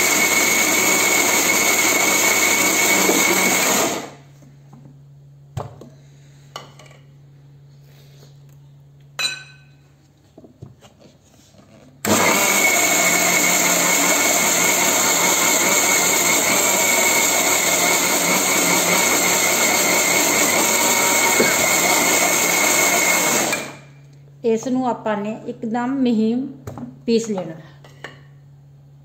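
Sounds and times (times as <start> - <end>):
mixer grinder running: 0.0 - 4.3, 12.0 - 23.9.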